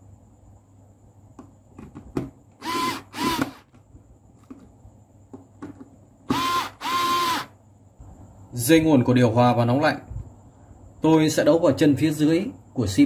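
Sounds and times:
cordless drill motor whine: 0:02.6 - 0:03.8, 0:06.3 - 0:07.6.

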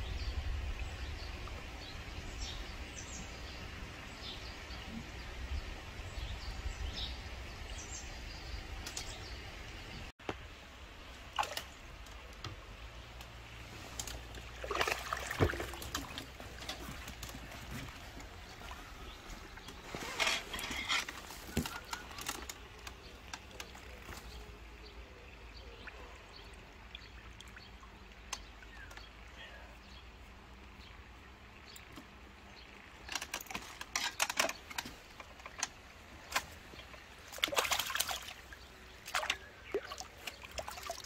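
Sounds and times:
water splashing and dripping: 0:08.8 - 0:29.4, 0:30.4 - 0:41.0.

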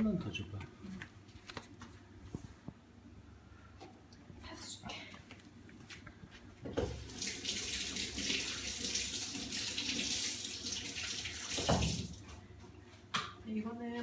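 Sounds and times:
tap running into sink: 0:11.4 - 0:12.1.

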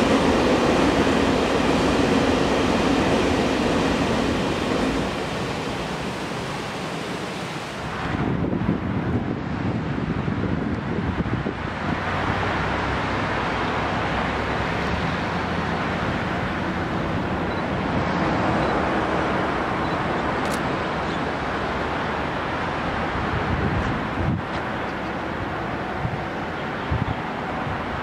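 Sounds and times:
road traffic roar: 0:00.0 - 0:28.0
wind buffeting microphone: 0:07.8 - 0:12.9, 0:23.1 - 0:28.0.

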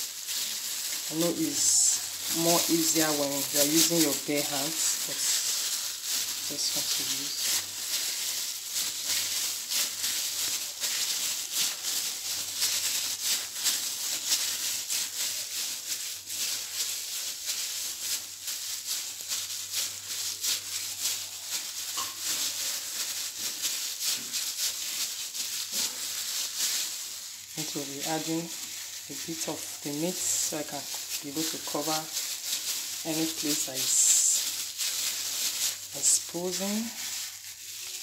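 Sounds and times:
hands pressing minced meat: 0:00.0 - 0:38.0
plastic gloves crinkling: 0:00.0 - 0:38.0.

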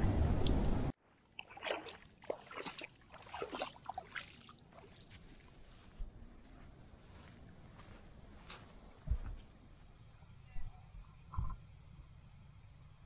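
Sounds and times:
water and wind noise: 0:00.0 - 0:13.0
footsteps in sand: 0:02.5 - 0:09.6.

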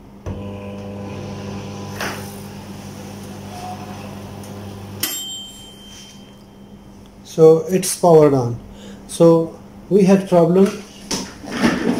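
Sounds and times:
microwave oven humming: 0:00.0 - 0:07.6
brief ring: 0:05.0 - 0:06.8.

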